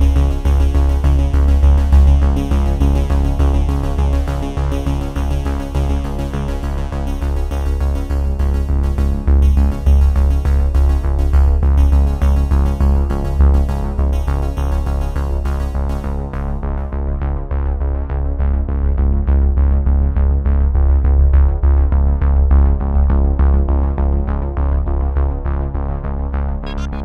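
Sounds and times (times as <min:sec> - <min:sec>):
electronic synthesizer music: 0:26.6 - 0:27.0.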